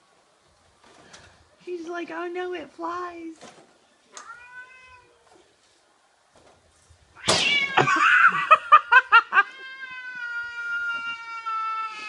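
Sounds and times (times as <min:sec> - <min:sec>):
cat hissing and yowling: 0:07.2 - 0:08.5, 0:09.3 - 0:12.0.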